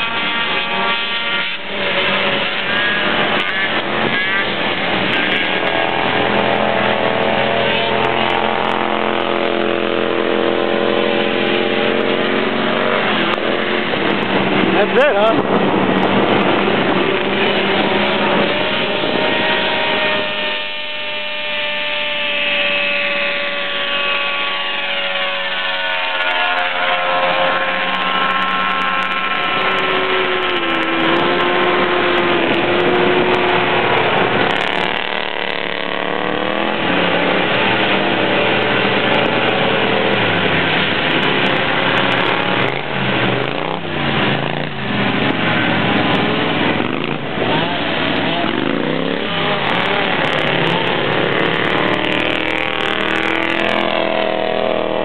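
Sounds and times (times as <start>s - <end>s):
atv engines racing: 0.0s - 55.0s.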